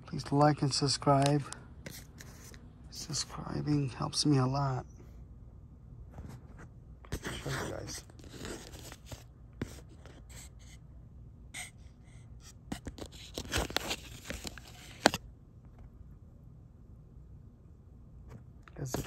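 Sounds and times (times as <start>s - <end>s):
rustling and scraping handling noises: 1.1s - 3.2s, 6.0s - 10.8s, 11.6s - 15.9s, 18.2s - 19.0s.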